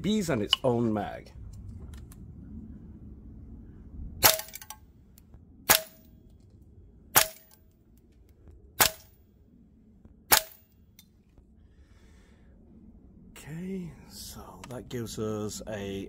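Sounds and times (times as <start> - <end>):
airsoft rifle shots: 4.2 - 4.7, 7.1 - 7.6, 8.8 - 9.1, 10.3 - 10.6.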